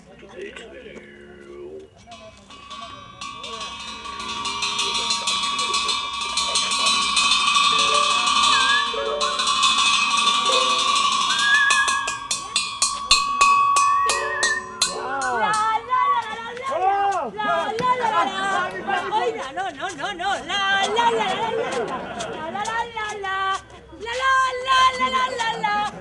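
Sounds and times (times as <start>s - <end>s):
ringing metal percussion: 2.1s - 16.4s.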